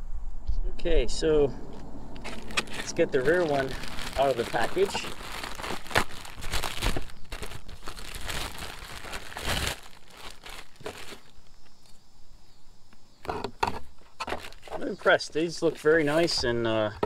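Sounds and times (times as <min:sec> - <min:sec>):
packaging crinkling and rustling: 0:02.2 - 0:11.6, 0:14.1 - 0:15.0.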